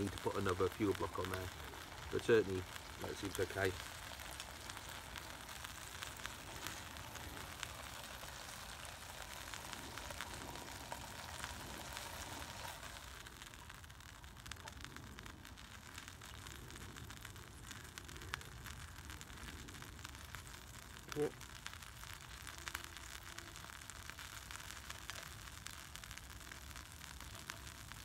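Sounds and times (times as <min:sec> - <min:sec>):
bacon sizzling in a frying pan: 0:00.0 - 0:28.0.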